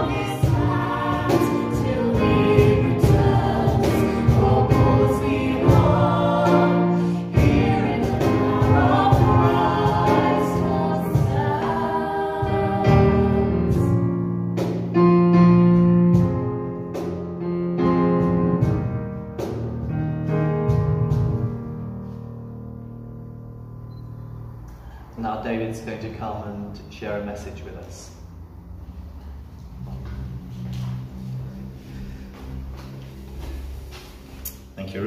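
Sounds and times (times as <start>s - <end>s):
group singing worship song: 0.0s - 14.2s
keyboard playing: 0.0s - 24.9s.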